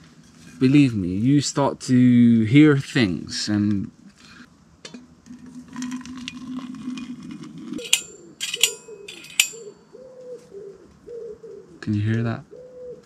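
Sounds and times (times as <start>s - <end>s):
hot water pouring into flask: 5.3s - 7.4s
pigeon cooing: 7.6s - 13.0s
ringing metal clinks: 7.8s - 9.8s.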